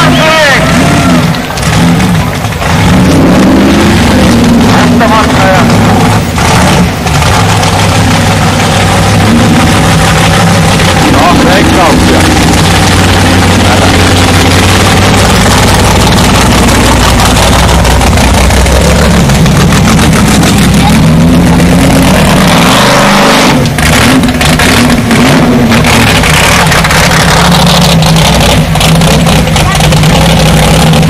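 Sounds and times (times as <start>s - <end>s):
buggy engine revving: 0.0s - 31.0s
sharp cracks: 1.2s - 3.5s, 11.9s - 31.0s.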